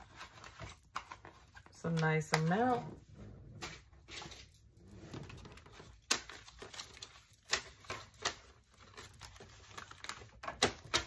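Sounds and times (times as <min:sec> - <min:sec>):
paper bills rustling: 0:05.2 - 0:11.0.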